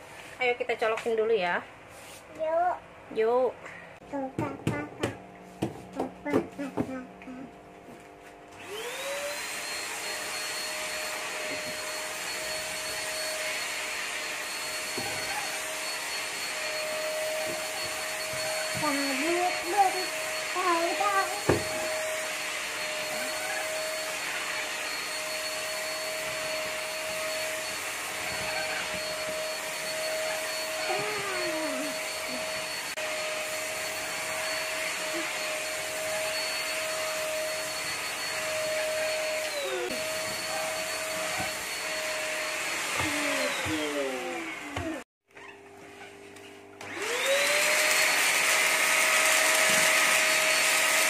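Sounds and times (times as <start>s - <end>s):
vacuum cleaner running: 0.0s - 51.0s
vacuum motor high whine: 8.4s - 45.7s, 46.4s - 51.0s.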